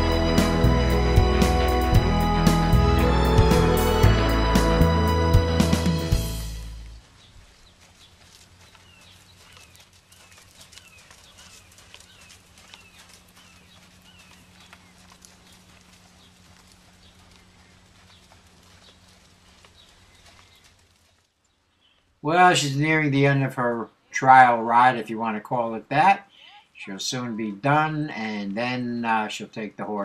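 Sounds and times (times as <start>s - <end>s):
hoofbeats on sand: 6.9s - 21.2s.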